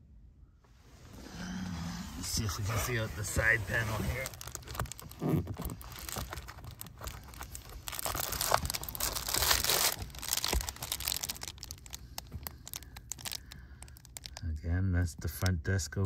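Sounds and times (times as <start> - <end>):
window cover panel crinkling: 2.5 - 14.4.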